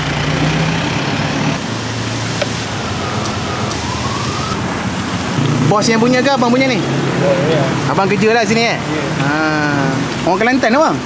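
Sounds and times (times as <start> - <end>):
fritters sizzling in hot oil: 1.7 - 3.8.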